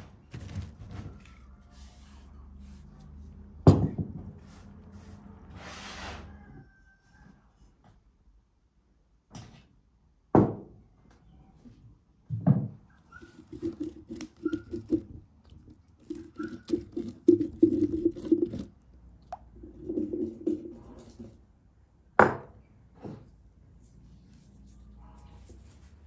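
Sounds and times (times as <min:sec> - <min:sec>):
dry ingredients pattering into pumpkin: 0:13.2 - 0:18.7.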